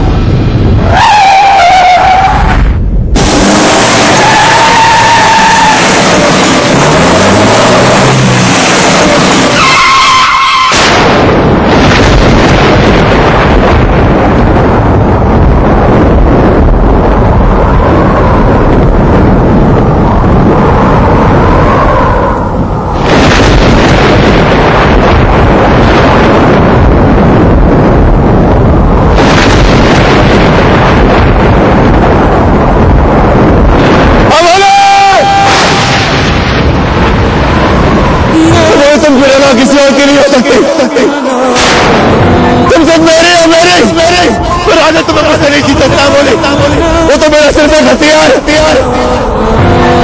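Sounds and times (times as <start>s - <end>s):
loud rushing noise: 0.0s - 50.0s
wind roaring: 0.0s - 50.0s
car engine revving: 2.1s - 12.0s
tyres squealing: 9.4s - 10.8s.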